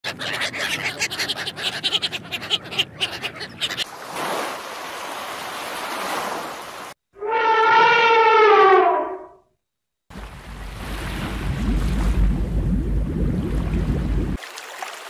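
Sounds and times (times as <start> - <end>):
ducks quacking: 0.0 - 3.9
surf washing over sand: 10.1 - 12.7.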